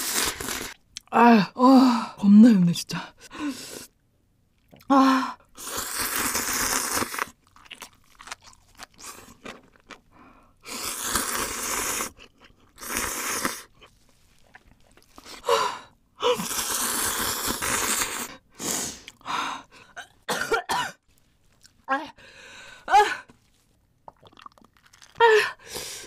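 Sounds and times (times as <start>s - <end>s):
slurping noodles: 0.0s - 0.8s, 5.6s - 7.4s, 10.6s - 15.4s, 16.3s - 19.2s
wet chewing: 6.2s - 10.1s, 11.1s - 15.4s, 23.4s - 25.2s.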